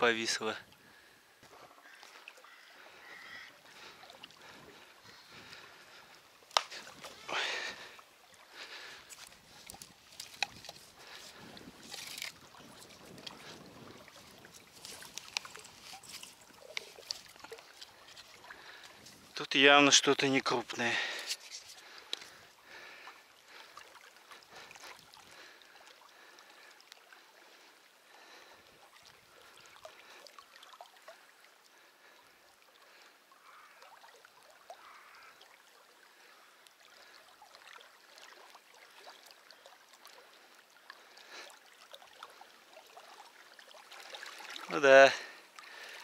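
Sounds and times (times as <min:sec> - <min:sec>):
quiet water at a bank: 0:00.0 - 0:46.0.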